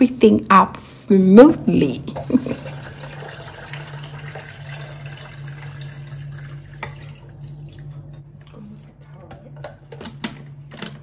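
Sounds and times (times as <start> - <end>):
water pouring into a container: 2.2 - 8.2.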